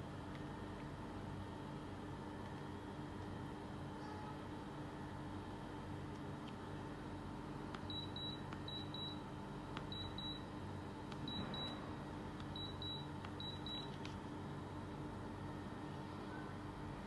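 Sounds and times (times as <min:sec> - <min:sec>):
steady low hum: 0:00.0 - 0:17.0
air conditioner short high beeps: 0:07.8 - 0:14.0.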